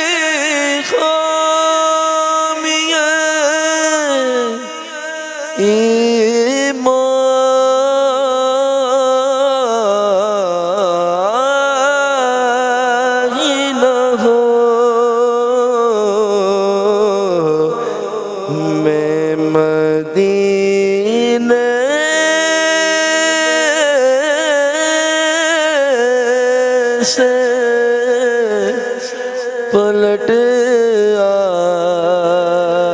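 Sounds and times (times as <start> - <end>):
man singing into a microphone: 0.0 - 32.9
singer breathing: 17.7 - 18.2, 29.0 - 29.5.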